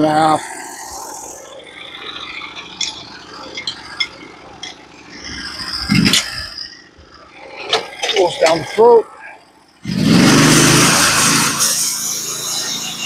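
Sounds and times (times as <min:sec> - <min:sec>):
metal clunk and rattle: 0:02.6 - 0:08.8.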